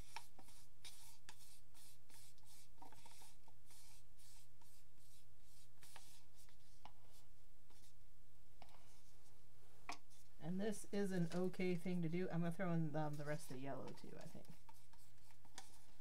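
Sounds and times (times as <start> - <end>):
stick scraping paint cup: 0.0 - 7.0, 13.1 - 16.0
low electrical hum: 0.0 - 16.0.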